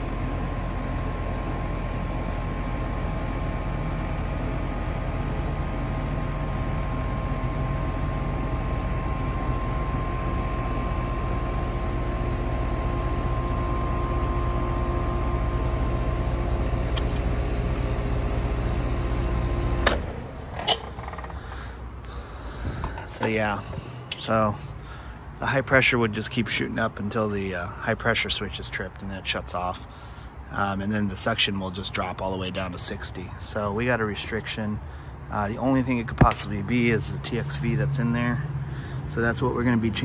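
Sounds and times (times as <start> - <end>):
heat pump humming: 0.0 - 40.0
heat pump shutoff clunk: 3.6 - 24.5, 36.1 - 37.8.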